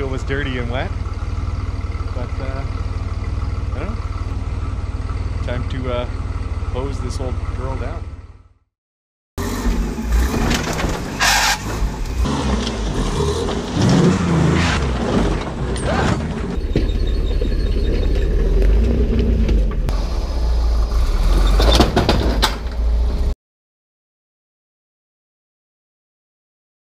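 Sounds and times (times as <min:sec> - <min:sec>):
engine running: 0:00.0 - 0:08.7, 0:09.4 - 0:23.3
knocks and clatters: 0:10.2 - 0:14.1, 0:21.6 - 0:22.9.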